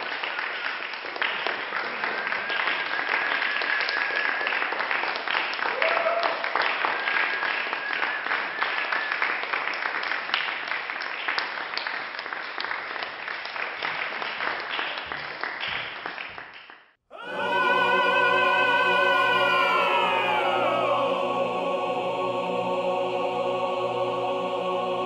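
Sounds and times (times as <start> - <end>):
audience applauding: 0.0 - 16.6
music: 17.2 - 25.0.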